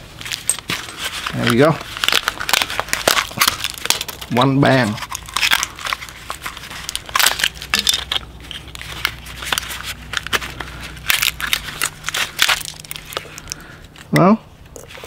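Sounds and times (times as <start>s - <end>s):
plastic casing crackling and snapping: 0.3s - 14.8s.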